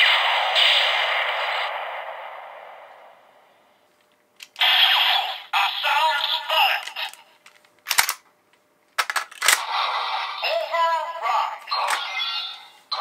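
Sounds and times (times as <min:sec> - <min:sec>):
toy electronic voice: 0:04.6 - 0:07.2, 0:10.2 - 0:13.0
sharp plastic clicks: 0:06.8 - 0:08.3, 0:09.0 - 0:09.6.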